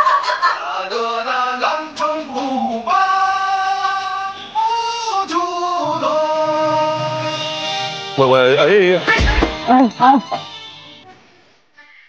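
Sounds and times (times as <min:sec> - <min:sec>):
person singing long held notes: 0:01.6 - 0:07.7.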